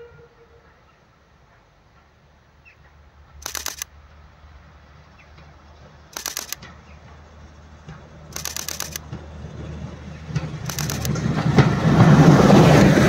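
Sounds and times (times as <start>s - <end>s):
diesel railcar passing: 0.0s - 13.0s
camera shutter clicks: 3.4s - 3.9s, 6.2s - 6.6s, 8.4s - 9.0s, 10.7s - 11.2s.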